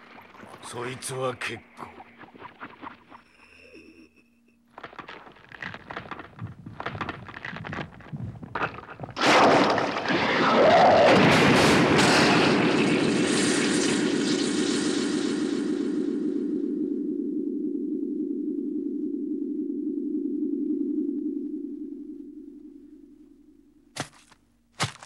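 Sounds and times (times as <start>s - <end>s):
cracking crunching clicks: 4.7s - 12.1s, 24.0s - 25.0s.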